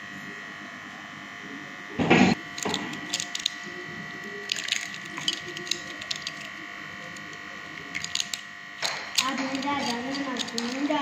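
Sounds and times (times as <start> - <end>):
high-pitched electrical hum: 0.0 - 11.0
eggshell crackling: 2.4 - 3.6, 4.4 - 11.0.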